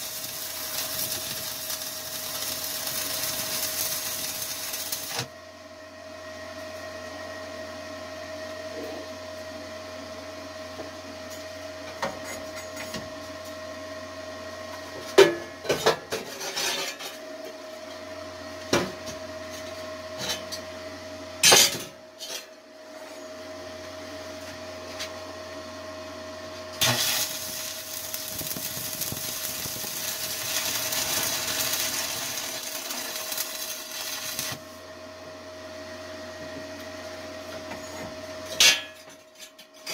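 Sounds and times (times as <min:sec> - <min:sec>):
welding arc crackling and hissing: 0:00.0 - 0:05.3, 0:26.8 - 0:34.8
background hum: 0:26.8 - 0:34.8.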